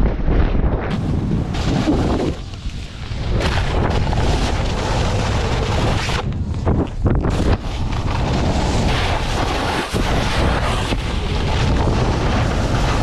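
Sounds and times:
wind rushing over microphone: 0.0 - 13.0
snowboard scraping over snow: 0.4 - 13.0.

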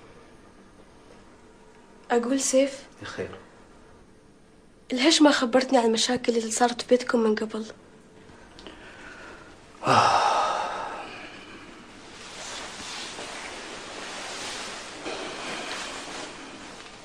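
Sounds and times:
soft breathy noise: 8.6 - 17.0
man sighing heavily: 9.8 - 11.3.

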